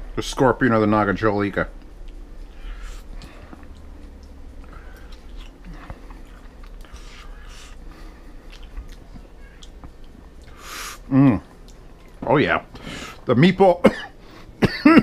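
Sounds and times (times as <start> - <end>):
low steady hum: 0.0 - 15.0
person chewing food: 1.8 - 13.2.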